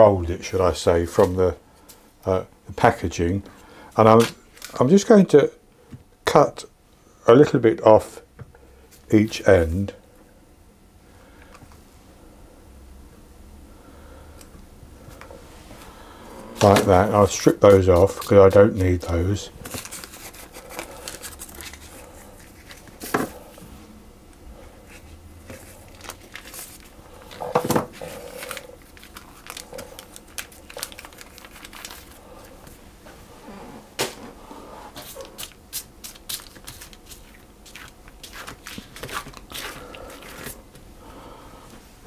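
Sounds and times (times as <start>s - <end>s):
baking paper rustling and crinkling: 16.6s - 23.6s, 24.8s - 32.8s, 34.9s - 40.7s.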